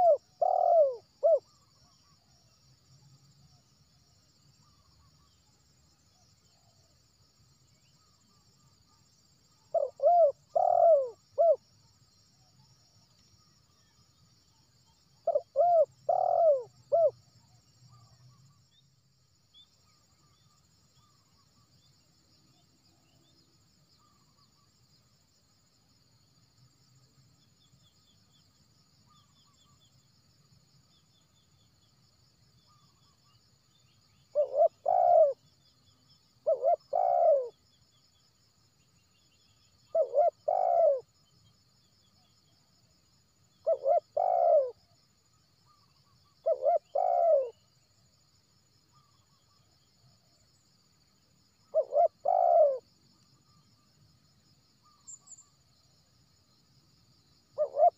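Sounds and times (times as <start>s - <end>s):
dove cooing: 0.0s - 1.5s, 9.7s - 11.6s, 15.2s - 17.1s, 34.3s - 35.4s, 36.4s - 37.5s, 39.9s - 41.0s, 43.7s - 44.8s, 46.4s - 47.6s, 51.7s - 52.8s, 57.6s - 57.9s.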